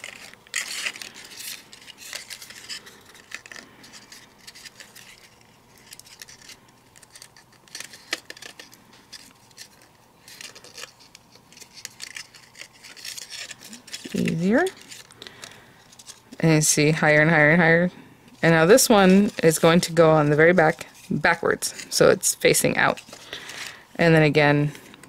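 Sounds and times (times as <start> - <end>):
cardstock rustling and clicking: 0.0 - 16.3.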